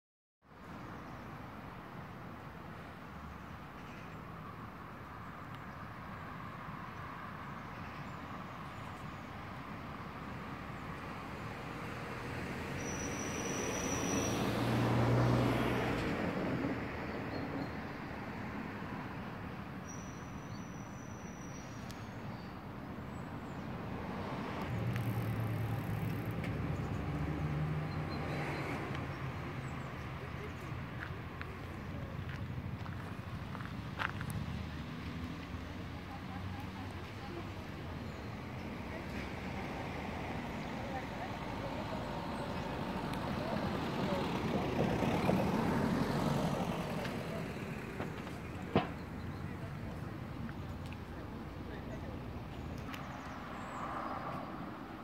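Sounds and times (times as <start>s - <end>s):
traffic rumble: 0.5s - 55.0s
vehicle engine hum: 24.2s - 55.0s.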